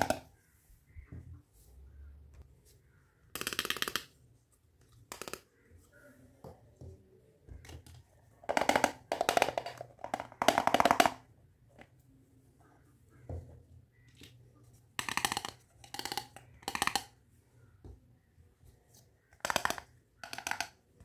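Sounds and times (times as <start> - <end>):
plastic toy kitchenware rattling: 7.7 - 11.2, 14.9 - 17.2, 19.3 - 20.8.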